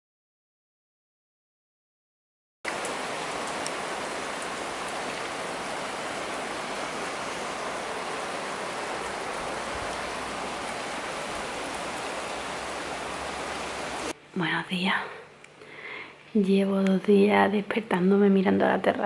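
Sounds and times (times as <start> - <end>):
heavy rain on tiles: 2.7 - 14.2.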